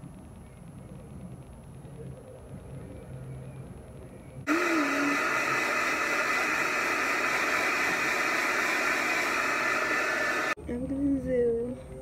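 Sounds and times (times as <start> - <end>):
hair dryer blowing: 4.5 - 10.6.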